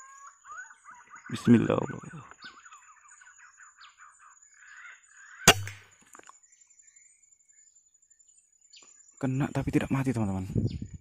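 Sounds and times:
small birds twittering: 0:00.0 - 0:11.0
rifle shot: 0:05.5 - 0:05.8.

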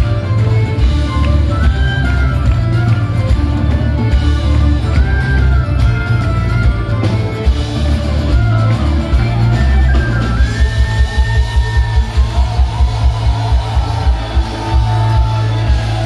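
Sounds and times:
bass guitar: 0:00.0 - 0:16.0
drums: 0:00.0 - 0:16.0
electric guitar: 0:00.0 - 0:16.0
fiddle melody: 0:00.0 - 0:16.0.

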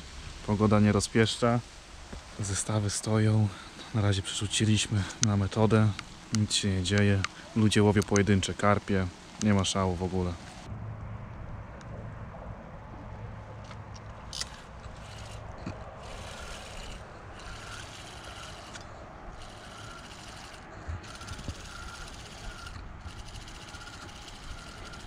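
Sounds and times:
fishing reel whirring: 0:14.3 - 0:25.0.

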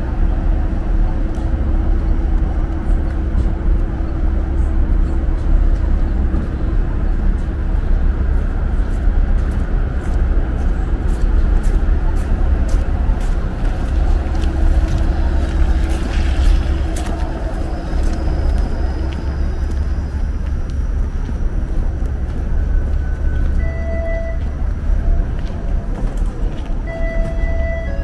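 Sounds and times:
street traffic rumble: 0:00.0 - 0:28.0
streetcar passing: 0:00.0 - 0:28.0.

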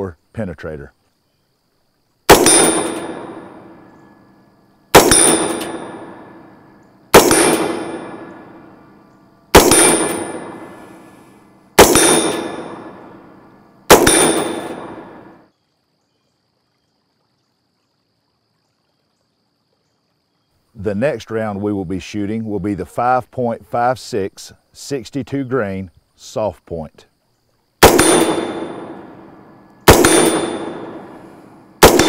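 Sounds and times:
rifle shots: 0:02.3 - 0:04.1, 0:04.9 - 0:06.5, 0:07.1 - 0:08.8, 0:09.5 - 0:15.4, 0:27.8 - 0:32.0
metal plate ringing clang: 0:02.4 - 0:04.1, 0:05.0 - 0:06.6, 0:07.2 - 0:08.8, 0:09.6 - 0:11.2, 0:11.8 - 0:13.2, 0:14.0 - 0:15.4, 0:28.0 - 0:31.6.

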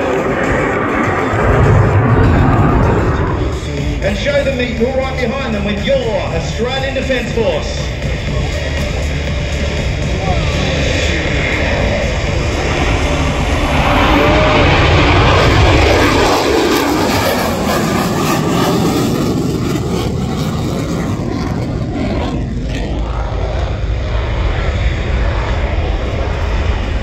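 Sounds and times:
fighter jet roaring: 0:00.0 - 0:27.0.

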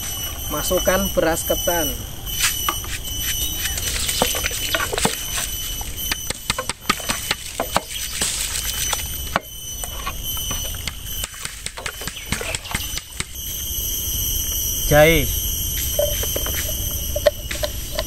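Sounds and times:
high-pitched whine: 0:00.0 - 0:18.0
ladle clinking and scraping pot: 0:16.0 - 0:18.0.

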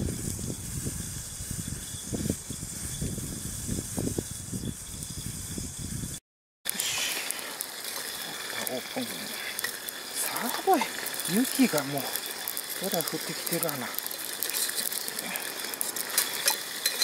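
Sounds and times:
fire hiss: 0:00.0 - 0:17.0
wood fire fluttering flames: 0:00.0 - 0:17.0
faint crackles: 0:06.7 - 0:17.0.

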